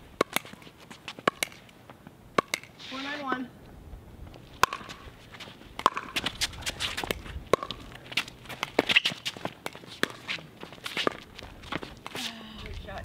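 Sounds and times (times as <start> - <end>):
paddles hitting plastic ball: 1.2 - 1.6, 4.6 - 5.0, 5.8 - 6.4, 7.0 - 10.3
footsteps and shoe scuffs: 4.9 - 12.4.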